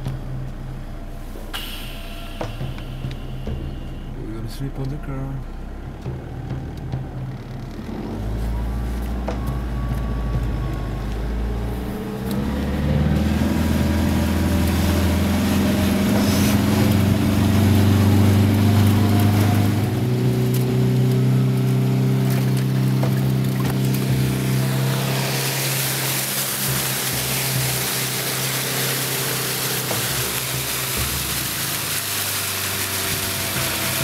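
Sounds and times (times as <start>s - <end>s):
vehicle engine droning: 0.0s - 34.0s.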